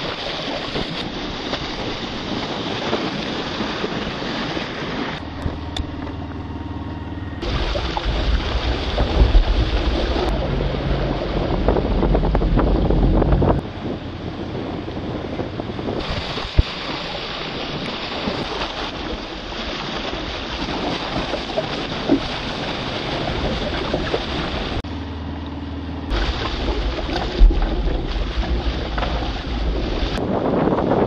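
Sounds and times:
wind buffeting microphone: 0:00.0 - 0:24.9, 0:26.1 - 0:31.0
low wind rumble: 0:00.0 - 0:31.0
waves and rushing water: 0:00.0 - 0:31.0.

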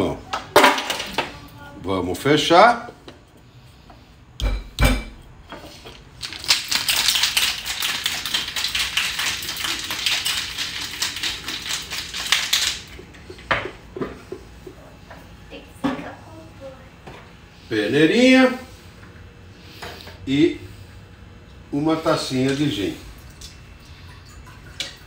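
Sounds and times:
ice rattling in shaker: 0:06.1 - 0:13.0.

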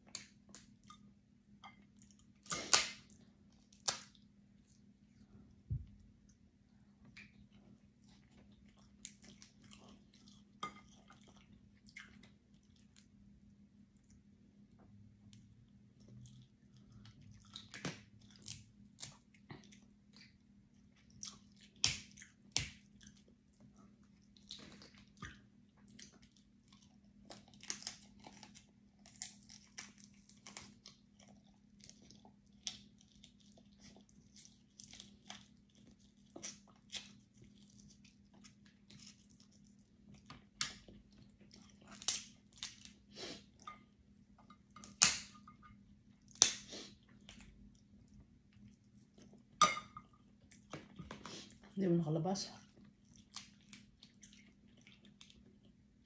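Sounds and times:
close chewing: 0:07.3 - 0:13.1, 0:15.9 - 0:43.7, 0:52.6 - 0:55.9
crab shells cracking: 0:44.8 - 0:45.5, 0:46.3 - 0:46.7.

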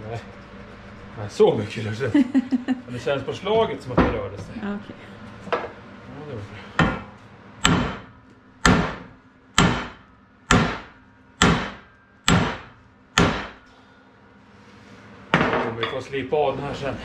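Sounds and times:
hammer striking metal press: 0:06.8 - 0:13.7.

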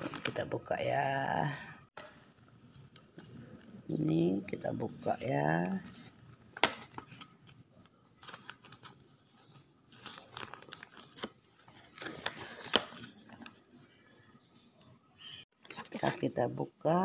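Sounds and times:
plastic bag crinkling: 0:06.7 - 0:13.6.

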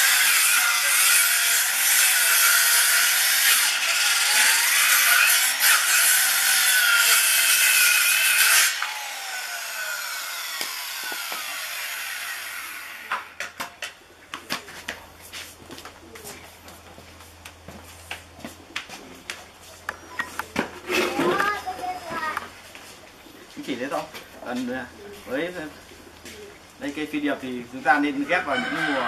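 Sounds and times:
saw blade winding down: 0:00.0 - 0:13.4
circular saw cutting log: 0:00.0 - 0:13.6.

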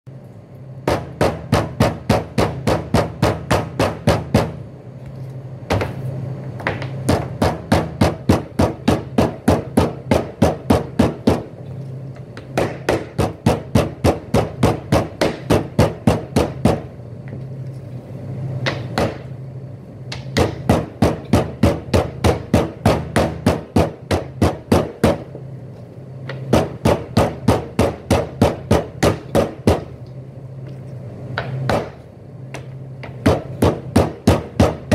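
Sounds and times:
metal mallet pounding meat: 0:00.8 - 0:04.6, 0:06.7 - 0:11.5, 0:12.5 - 0:16.9, 0:18.7 - 0:19.3, 0:20.1 - 0:25.3, 0:26.3 - 0:29.9, 0:31.4 - 0:32.0, 0:33.0 - 0:34.9.

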